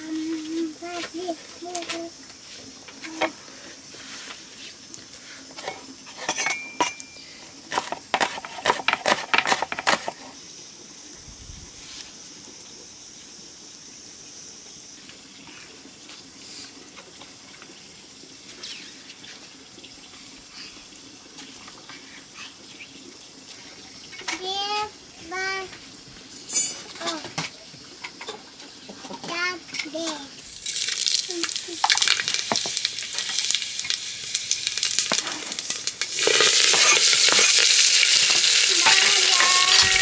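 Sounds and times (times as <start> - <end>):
faint hiss: 0.0 - 9.2, 10.0 - 40.0
metal dishes clattering: 5.6 - 7.1.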